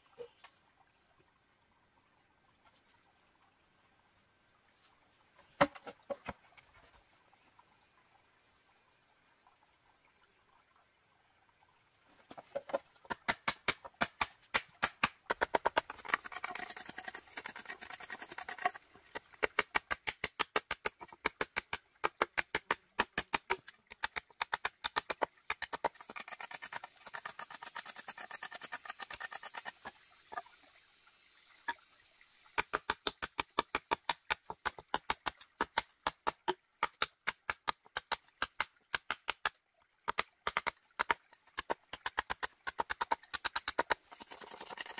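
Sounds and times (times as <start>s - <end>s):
knife chopping bamboo on wood: 5.6s - 6.3s, 12.4s - 29.8s, 32.6s - 39.5s, 40.1s - 44.9s.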